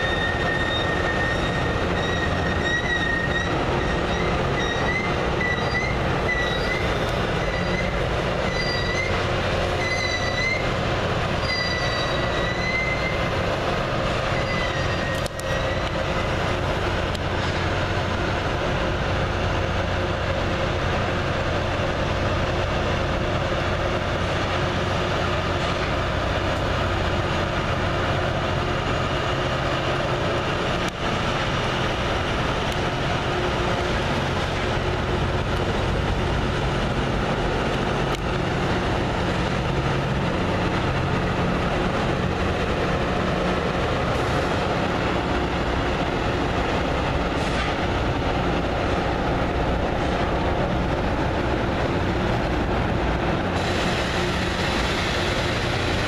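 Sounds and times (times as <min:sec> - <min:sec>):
wheel squeal: 0:00.0 - 0:10.8, 0:11.4 - 0:13.3, 0:14.3 - 0:16.0
train rumbling on bridge: 0:00.0 - 0:56.0.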